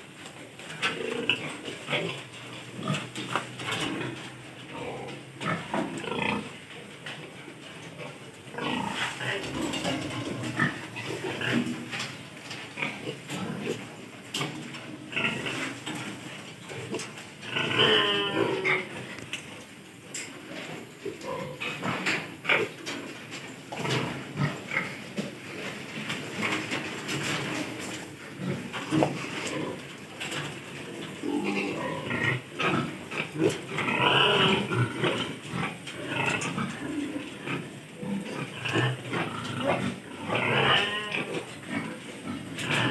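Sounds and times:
piglets grunting: 0.8 - 6.6, 16.7 - 19.2, 31.1 - 42.9.

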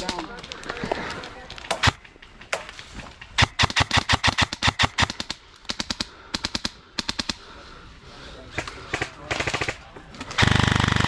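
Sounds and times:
airsoft rifle firing: 1.7 - 2.8, 3.4 - 7.4, 8.6 - 11.0.

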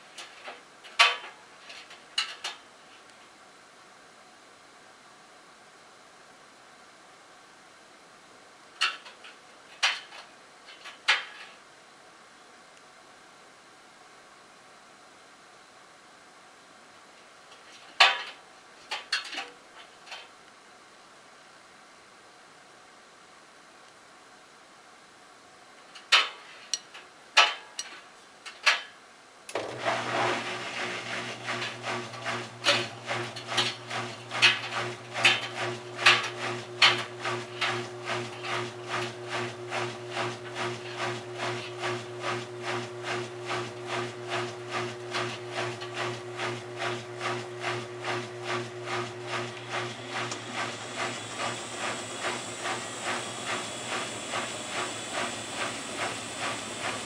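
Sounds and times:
washing machine motor humming: 29.5 - 57.0
washing machine knocking: 49.4 - 57.0
hiss: 50.3 - 57.0.

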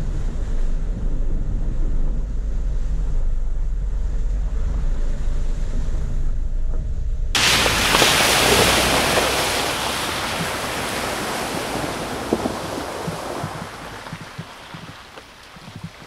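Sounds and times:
tyres throwing water spray: 7.4 - 16.0.

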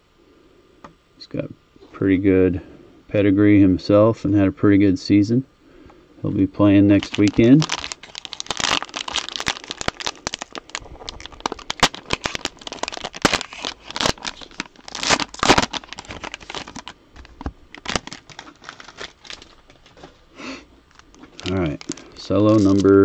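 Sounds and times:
cellophane crinkling and tearing: 6.7 - 20.3, 20.9 - 23.0.

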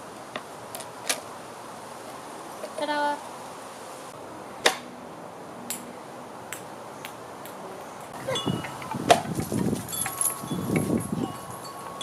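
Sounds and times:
faint chime-like ringing: 8.3 - 8.8, 9.9 - 12.0
dogs scuffling on grass: 8.5 - 12.0.

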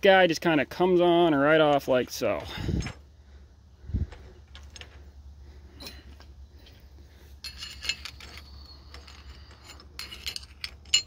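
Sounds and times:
light ringing metal clinks: 7.4 - 11.0.

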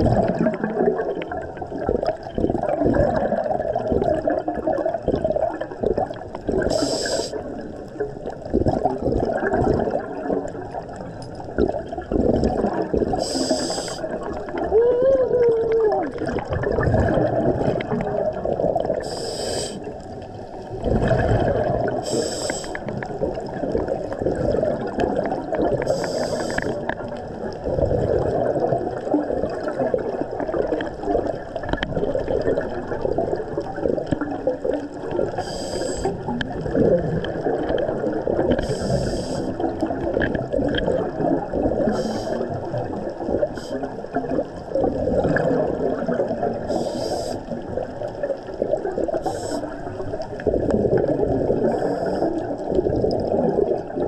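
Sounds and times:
underwater rush of water: 0.0 - 54.0
hissing regulator bubble bursts: 12.2 - 14.3.

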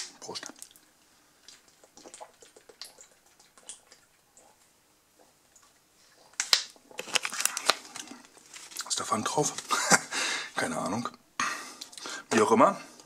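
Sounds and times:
person gulping water: 0.3 - 4.6.

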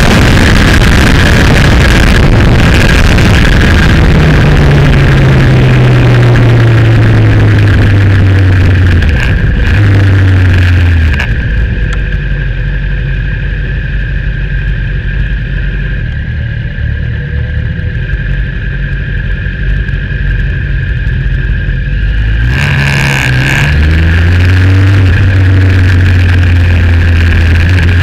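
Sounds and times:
wind rush on microphone: 0.0 - 13.6
motorcycle engine slowing to idle: 0.0 - 22.2.

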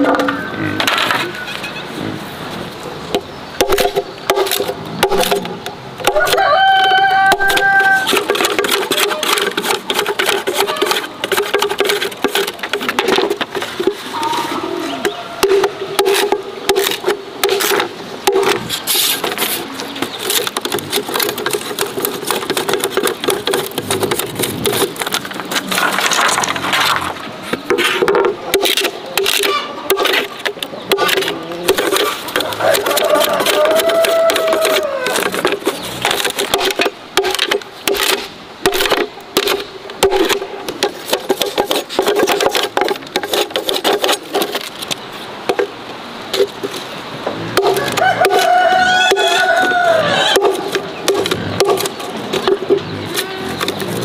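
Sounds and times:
chickens clucking: 0.0 - 37.3, 46.8 - 54.0
bamboo cracking under a cleaver: 3.2 - 13.4, 27.7 - 45.7, 47.5 - 54.0
rooster crowing: 6.1 - 8.1, 14.2 - 15.6, 32.4 - 35.3, 47.6 - 50.4.

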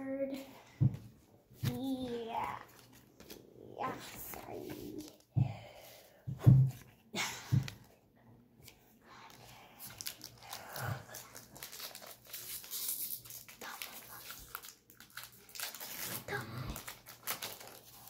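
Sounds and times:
trading cards being handled: 1.5 - 5.3
foil wrapper crinkling: 9.8 - 18.0.

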